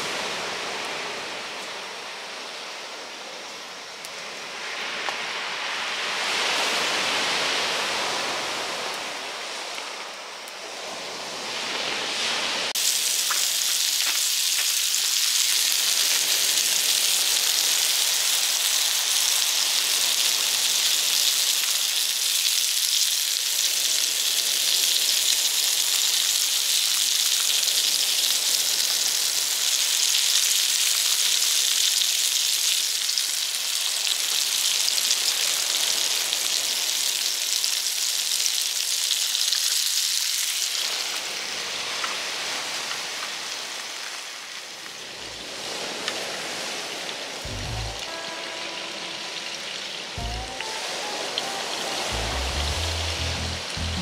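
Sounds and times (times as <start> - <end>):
mushrooms sizzling in butter: 12.8 - 35.5, 36.4 - 40.9
rushing noise: 47.4 - 54.0.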